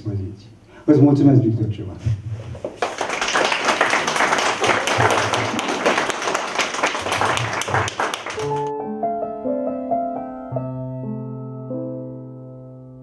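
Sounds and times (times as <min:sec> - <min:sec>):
crowd applauding: 0:02.6 - 0:08.7.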